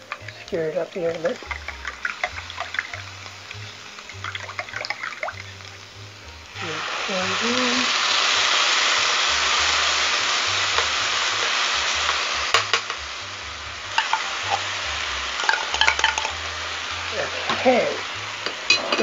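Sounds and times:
sizzling in a skillet: 0.0s - 19.0s
spoon scraping a pan: 13.9s - 14.7s, 15.4s - 16.4s, 17.4s - 19.0s.

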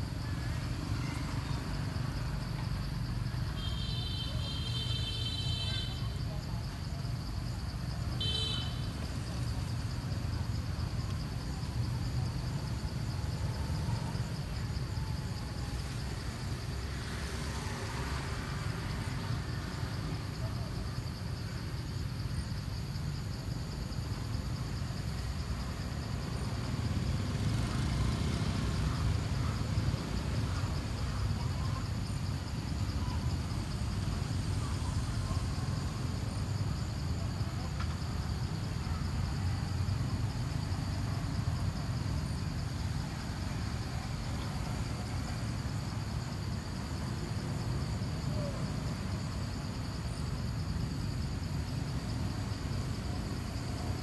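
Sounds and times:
insect buzz: 0.1s - 6.3s, 7.1s - 20.3s.

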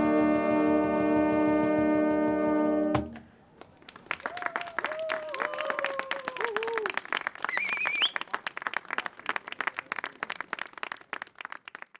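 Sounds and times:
brass ensemble held notes: 0.0s - 3.1s
audience applause: 3.6s - 11.9s.

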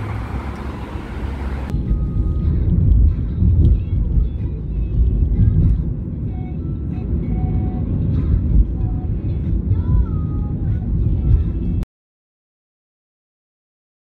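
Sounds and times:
road and engine rumble: 0.0s - 11.8s.

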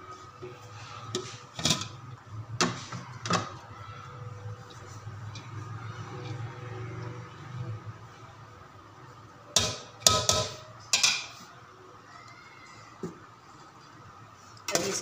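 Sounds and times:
metal spoon clanking on pot: 1.1s - 2.0s, 9.5s - 11.4s.

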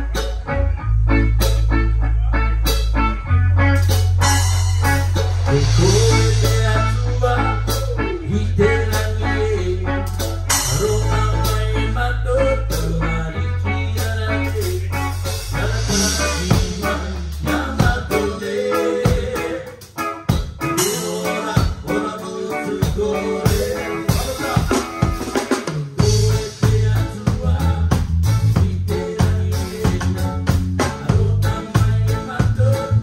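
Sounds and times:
bass line: 0.0s - 33.0s
guitar: 0.0s - 33.0s
keyboard: 0.0s - 33.0s
drums with snare hits: 14.6s - 18.3s, 22.8s - 32.8s.

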